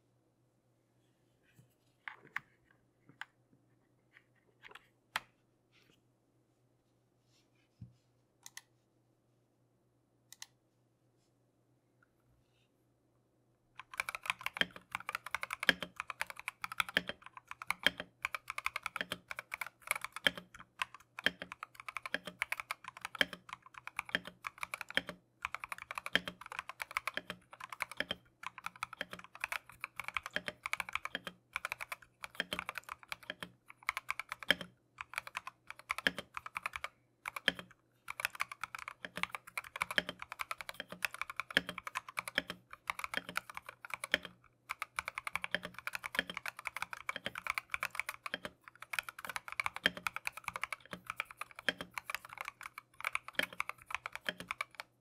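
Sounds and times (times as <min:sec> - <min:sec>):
mechanical keyboard typing: 0:13.8 - 0:55.0.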